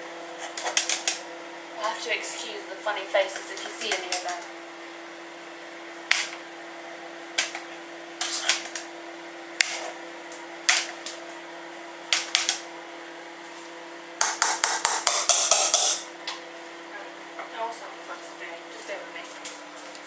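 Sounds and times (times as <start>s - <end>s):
microwave humming: 0.0s - 20.0s
potato masher knocking saucepan: 14.2s - 16.1s.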